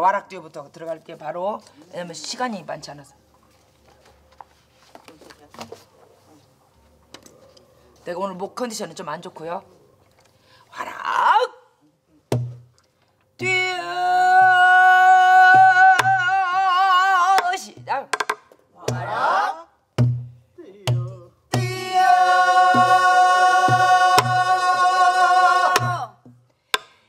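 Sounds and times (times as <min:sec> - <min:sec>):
low drum thumps: 0:12.3 - 0:12.7, 0:20.0 - 0:22.1, 0:22.7 - 0:24.5, 0:25.8 - 0:26.4
woman singing with vibrato: 0:13.4 - 0:17.7, 0:21.6 - 0:26.2.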